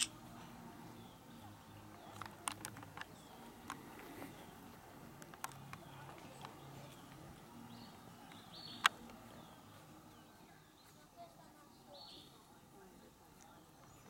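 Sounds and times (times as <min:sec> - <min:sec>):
faint distant voices: 0:00.0 - 0:14.0.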